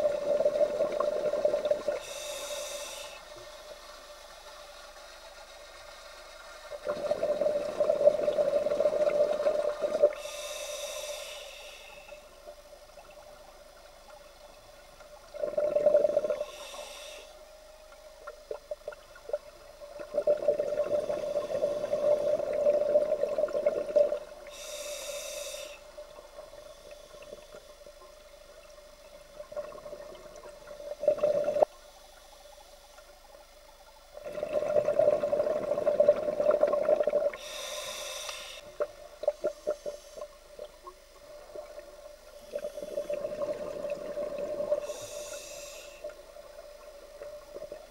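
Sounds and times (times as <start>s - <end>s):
faint steady hum: 0.0s - 47.9s
diver breathing through regulator: 0.2s - 3.3s, 9.2s - 12.3s, 15.5s - 17.6s, 24.5s - 26.0s, 37.3s - 40.5s, 42.4s - 46.2s.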